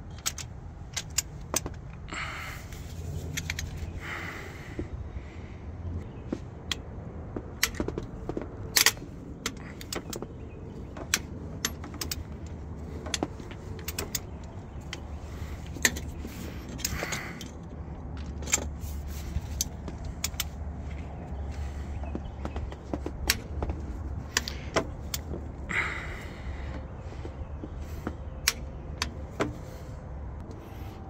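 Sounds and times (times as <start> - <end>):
metallic clicks of tools: 0.0 - 2.0, 11.0 - 20.6
steady low rumble: 0.0 - 31.0.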